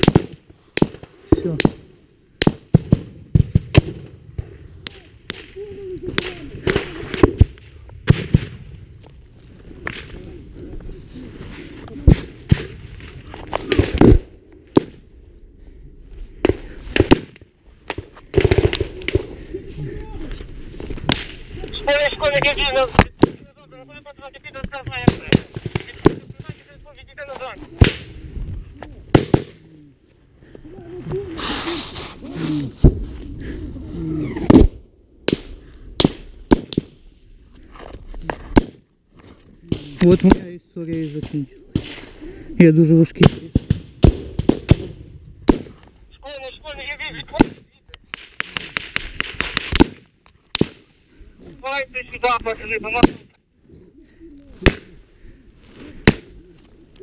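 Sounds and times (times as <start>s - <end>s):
gunshots: 16.4s - 19.4s, 24.6s - 26.7s, 29.1s - 29.6s, 39.7s - 42.2s, 47.1s - 50.9s, 52.8s - 53.3s.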